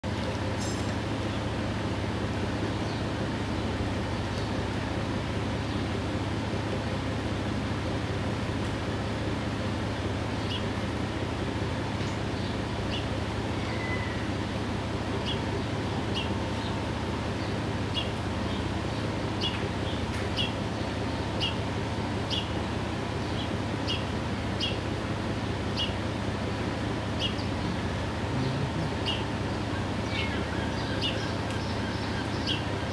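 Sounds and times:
steady low hum: 14.2 - 32.9
bird chirping: 28.4 - 29.3, 30.0 - 32.9.

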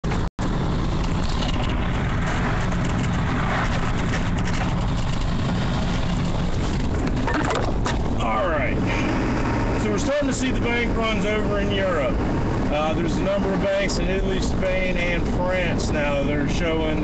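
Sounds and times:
truck engine drone: 0.0 - 17.0.

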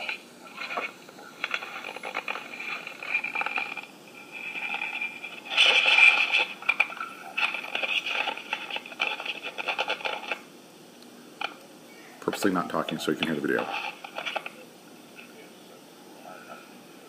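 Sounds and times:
muffled scraping and rubbing: 0.0 - 10.4, 12.4 - 15.4.

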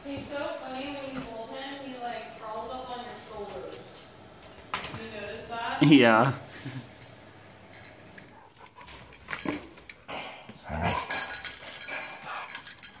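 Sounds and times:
dogs vocalizing in play: 8.2 - 13.0.

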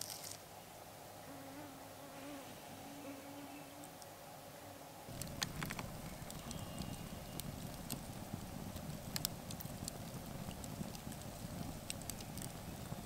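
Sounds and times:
fly buzzing: 1.3 - 4.0
campfire crackling and popping: 5.1 - 13.0.

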